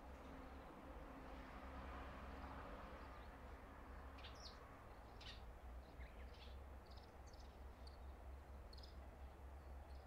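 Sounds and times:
small birds chirping: 4.2 - 10.0.

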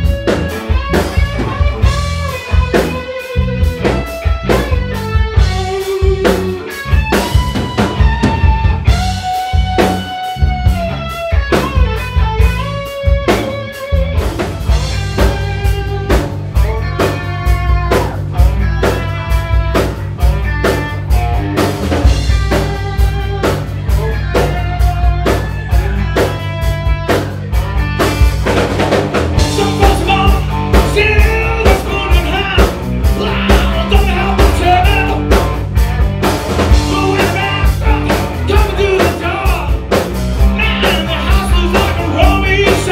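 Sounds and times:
bass guitar: 0.0 - 42.9
drum kit beat: 0.0 - 42.9
electric guitar: 0.0 - 42.9
person singing: 29.4 - 35.6, 36.7 - 39.9, 40.5 - 42.9.

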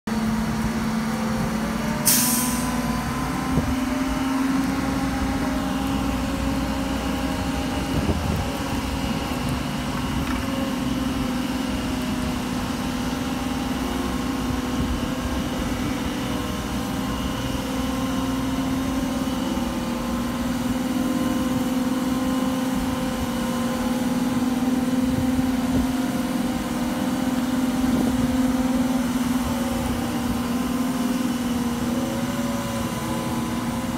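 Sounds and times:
crane diesel engine running: 0.1 - 33.9
air hiss: 2.1 - 2.8.

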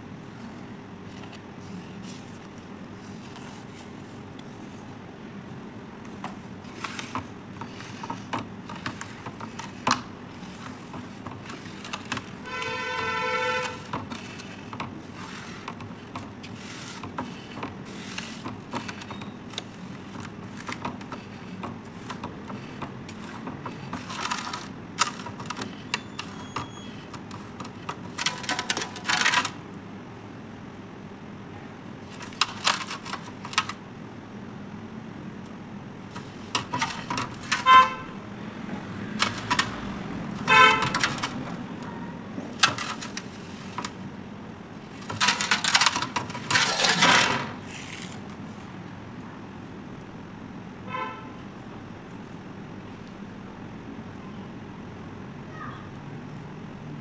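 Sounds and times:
low background hum: 0.0 - 57.0
horn-like tone: 12.4 - 13.9, 37.6 - 38.2, 50.9 - 51.4.

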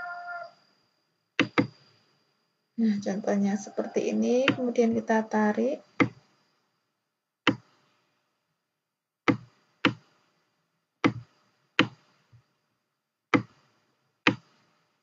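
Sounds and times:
computer mouse clicking: 1.4 - 1.8, 14.3 - 14.6.

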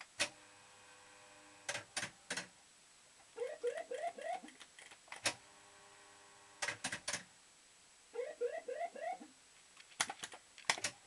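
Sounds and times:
machine clicks: 1.7 - 2.5, 6.6 - 7.3.

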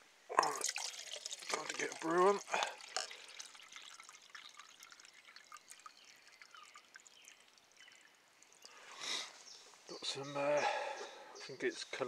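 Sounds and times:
water pouring into metal pot: 0.3 - 8.9.

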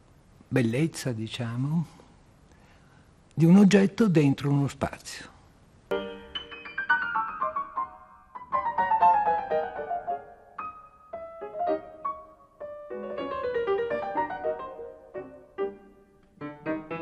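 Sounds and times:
solo piano playing falling runs: 5.9 - 17.0.

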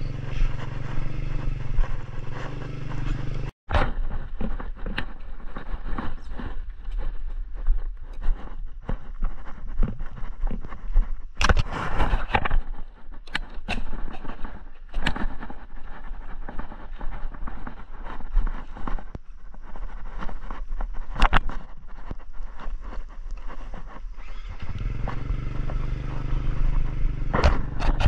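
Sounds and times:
motorbike engine rumble: 0.0 - 3.5, 24.2 - 28.0
knocks and rattles over bumps: 24.5 - 28.0.

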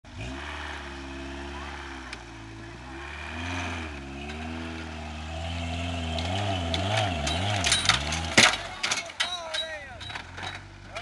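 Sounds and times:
buggy engine revving hard: 0.0 - 8.8
clicks of flung dirt and stones: 6.1 - 11.0.

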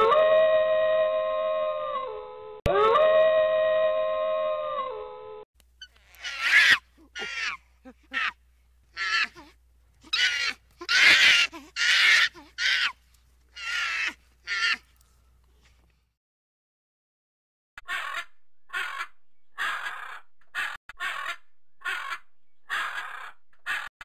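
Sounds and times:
monkey giving harsh raspy calls: 5.8 - 13.0, 13.6 - 14.9, 17.8 - 23.9.

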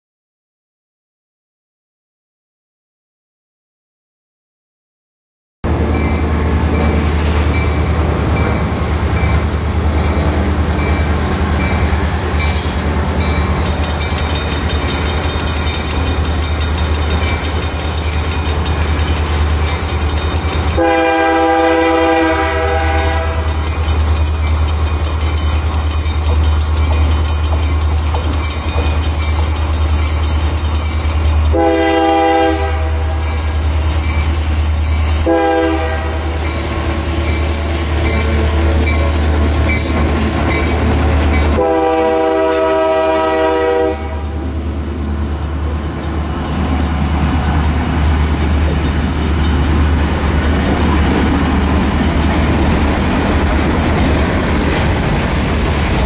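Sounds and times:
train rumble: 5.6 - 56.0
locomotive air horn: 20.8 - 23.5, 31.5 - 33.2, 35.2 - 39.4, 41.2 - 44.4.

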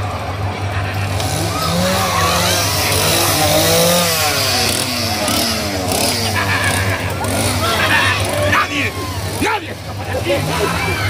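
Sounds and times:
chainsaw revving: 1.0 - 11.0
people shouting: 1.3 - 4.0, 7.4 - 11.0.

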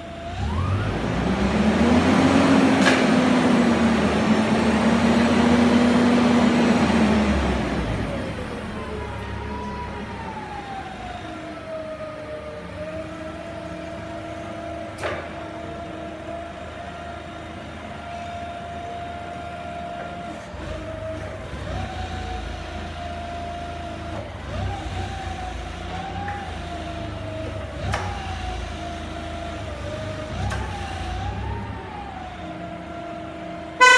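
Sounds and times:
forklift high whine: 0.0 - 33.9.

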